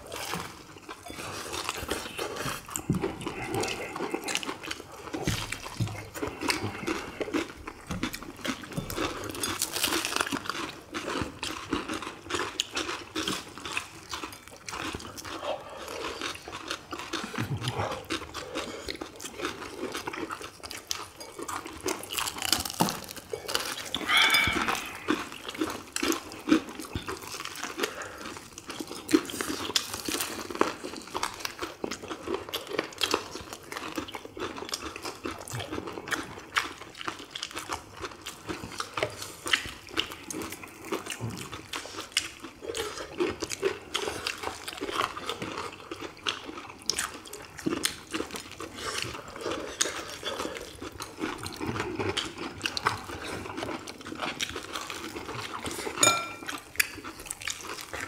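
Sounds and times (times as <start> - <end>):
crunching bites and chewing: 0.0 - 58.0.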